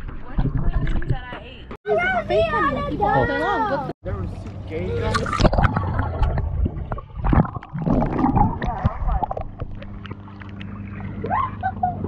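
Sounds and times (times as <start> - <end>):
water splashes: 0.0 - 1.7, 5.0 - 11.9
water sloshing and gurgling: 0.0 - 1.8, 4.2 - 12.0.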